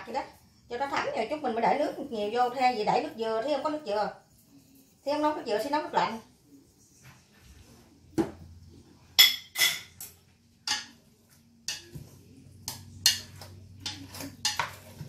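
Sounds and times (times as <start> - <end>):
chopsticks clinking on metal pot: 12.7 - 14.9.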